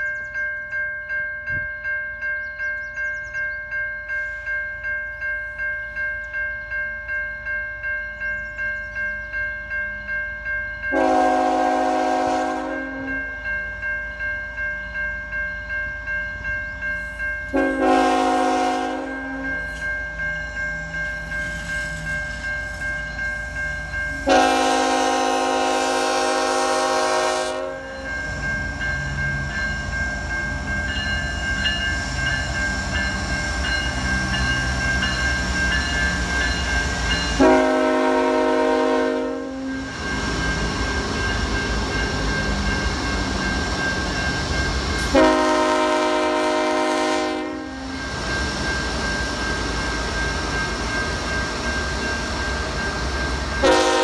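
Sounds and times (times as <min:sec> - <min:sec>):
level-crossing bell ringing: 0:00.0 - 0:26.5, 0:27.6 - 0:38.4, 0:39.2 - 0:45.2, 0:47.4 - 0:54.0
train rumbling past: 0:02.5 - 0:54.0
locomotive chime horn: 0:10.8 - 0:13.5, 0:17.0 - 0:23.3, 0:24.1 - 0:30.0, 0:32.9 - 0:43.2, 0:45.0 - 0:48.2, 0:53.5 - 0:54.0.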